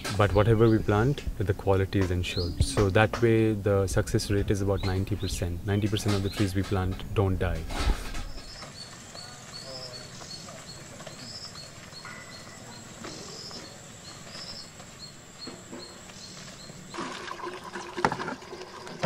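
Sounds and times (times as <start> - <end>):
bird chirping: 0.0 - 17.1
water pouring from bottle: 16.9 - 19.0
plastic bottles knocking: 17.0 - 19.0.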